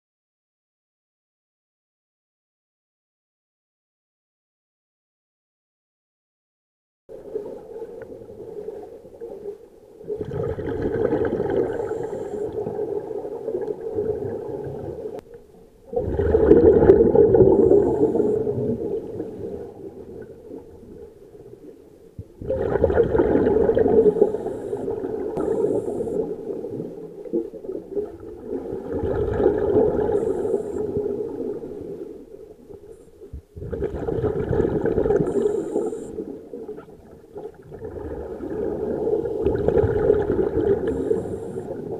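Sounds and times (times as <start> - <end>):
underwater regulator bubbling: 10.0 - 41.9.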